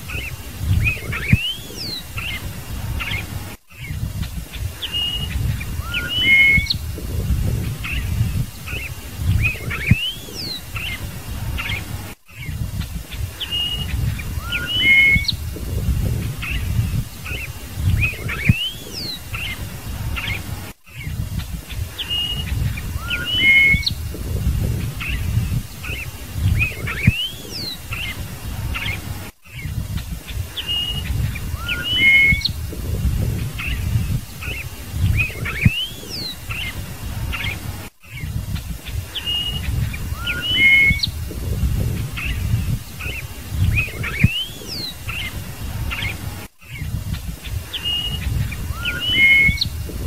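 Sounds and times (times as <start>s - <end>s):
blackbird singing whistles: 0.1s - 2.4s, 4.8s - 6.9s, 7.5s - 11.0s, 13.4s - 19.6s, 22.0s - 28.1s, 30.6s - 32.6s, 33.3s - 36.7s, 39.2s - 41.2s, 41.8s - 45.3s, 47.7s - 50.0s
low rumble: 6.8s - 8.6s, 15.3s - 17.2s, 23.9s - 27.1s, 32.5s - 34.3s, 41.1s - 42.9s.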